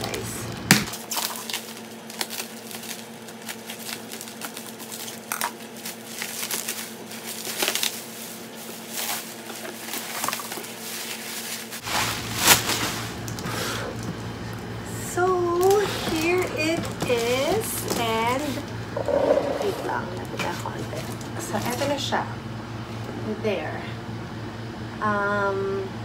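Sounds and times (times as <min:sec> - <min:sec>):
bubble wrap crinkling: 0:00.9 - 0:14.1, 0:15.4 - 0:19.5.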